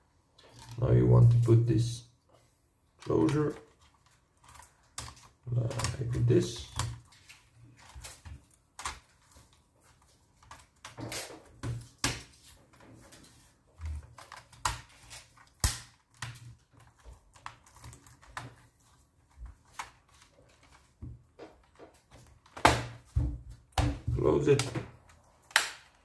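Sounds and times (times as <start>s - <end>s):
plastic keyboard clicks and taps: 3.0s - 7.1s, 7.8s - 9.1s, 19.3s - 26.0s.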